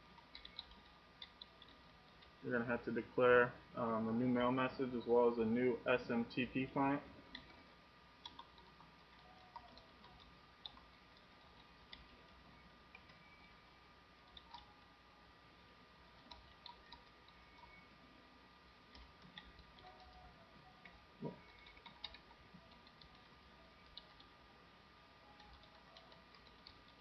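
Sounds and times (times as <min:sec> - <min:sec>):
faint high whine: 0:00.0 - 0:27.0
keyboard typing clicks: 0:00.2 - 0:02.3, 0:07.3 - 0:07.6, 0:08.2 - 0:13.6, 0:14.2 - 0:14.8, 0:16.1 - 0:17.9, 0:18.9 - 0:24.3, 0:25.3 - 0:27.0.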